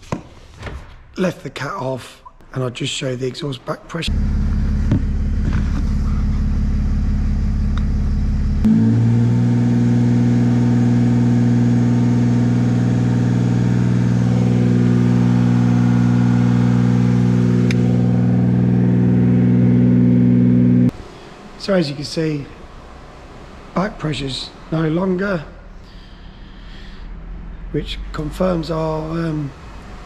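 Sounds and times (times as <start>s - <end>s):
diesel engine running: 4.1s - 25.2s.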